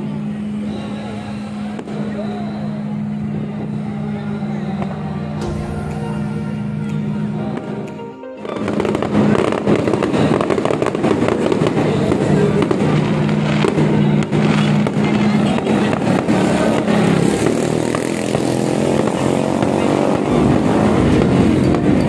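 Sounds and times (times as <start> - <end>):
fireworks popping and crackling: 0.0 - 7.8, 8.4 - 22.0
music: 5.4 - 10.4.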